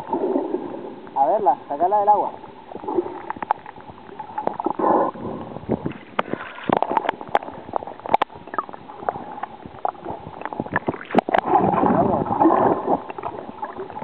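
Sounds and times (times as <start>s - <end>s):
underwater gurgling water: 0.0s - 14.0s
underwater clicks and knocks: 3.1s - 4.8s, 5.7s - 12.2s.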